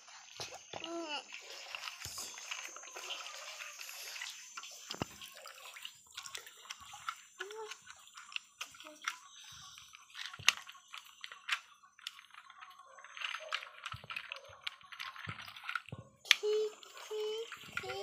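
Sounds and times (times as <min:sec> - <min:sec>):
water sloshing: 0:00.0 - 0:18.0
plastic toy clicks and snaps: 0:06.2 - 0:18.0.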